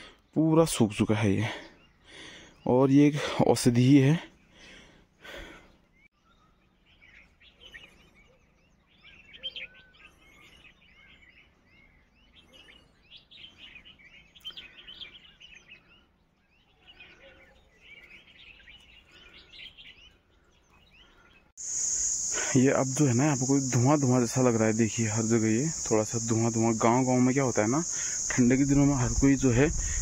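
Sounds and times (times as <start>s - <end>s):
small birds chirping: 0.0s - 30.0s.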